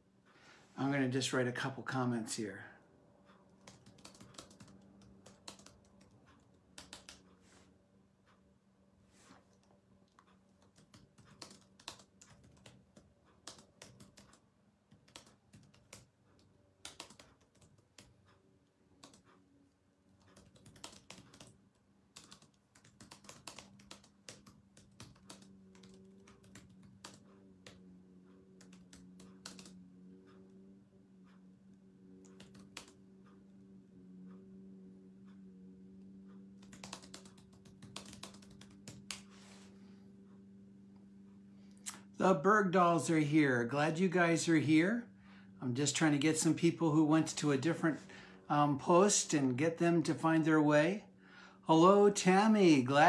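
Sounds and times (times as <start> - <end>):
steady low hum: 0.0 - 53.0
typing on computer keyboard: 3.6 - 7.4, 9.5 - 18.4, 19.0 - 19.4, 20.2 - 29.8, 32.2 - 33.0, 36.4 - 39.3.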